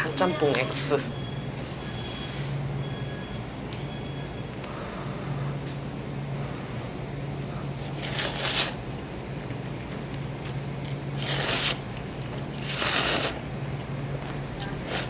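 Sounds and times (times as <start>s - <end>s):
person slurping noodles: 7.8s - 8.8s, 11.2s - 11.9s, 12.5s - 13.4s.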